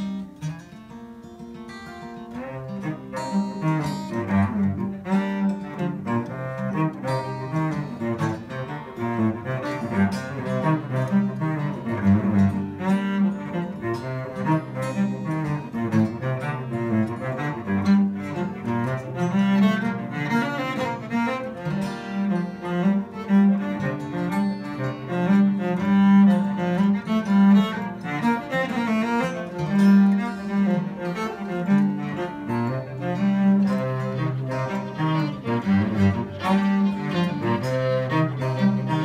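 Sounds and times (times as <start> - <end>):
acoustic guitar strumming: 0.0 - 39.0
cello bowing: 0.0 - 39.0.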